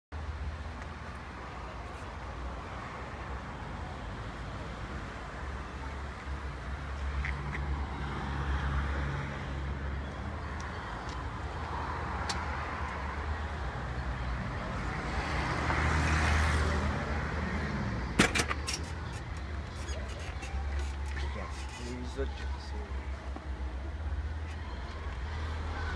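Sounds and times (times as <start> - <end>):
traffic engine hum: 0.2 - 25.9
vehicle passing: 10.9 - 18.2.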